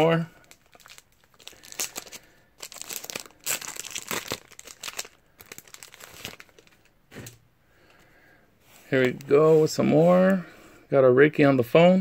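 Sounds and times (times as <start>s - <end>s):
packaging crinkling and rustling: 0.0s - 7.3s.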